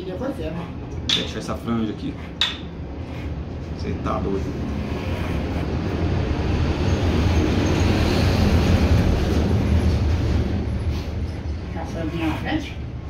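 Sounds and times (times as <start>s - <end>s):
electric hair clippers buzzing: 4.2s - 6.1s.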